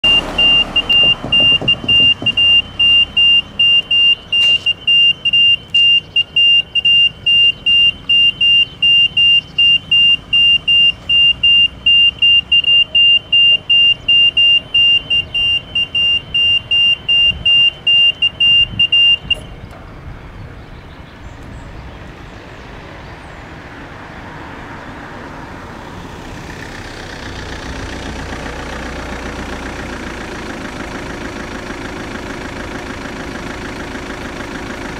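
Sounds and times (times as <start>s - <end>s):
level crossing electronic beeping: 0.0s - 19.5s.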